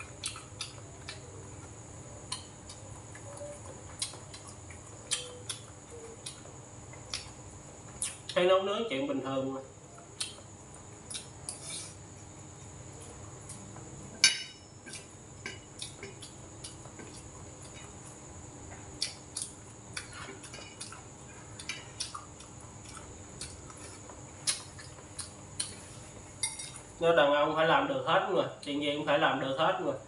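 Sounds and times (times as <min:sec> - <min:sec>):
utensils clinking against dishes: 0:26.4 - 0:26.8.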